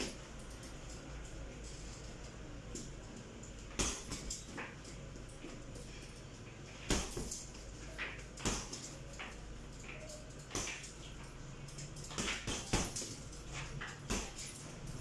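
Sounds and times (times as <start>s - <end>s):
gloves thudding into punching bag: 3.8s - 4.3s, 6.9s - 7.4s, 12.2s - 13.1s, 14.1s - 14.5s.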